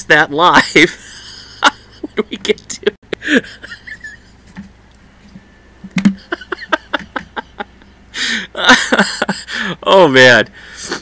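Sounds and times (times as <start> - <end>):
man laughing: 0.5 - 4.6, 6.1 - 10.0, 10.7 - 11.0.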